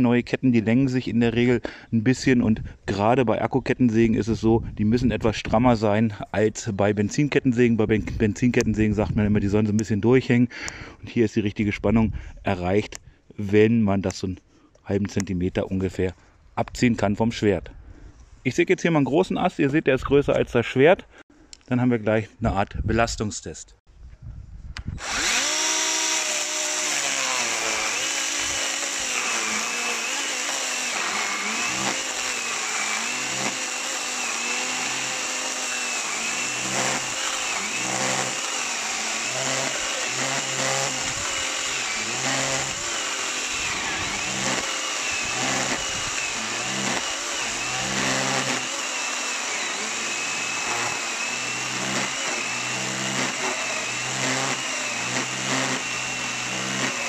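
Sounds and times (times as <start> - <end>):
electric chainsaw cutting log: 25.0 - 57.0.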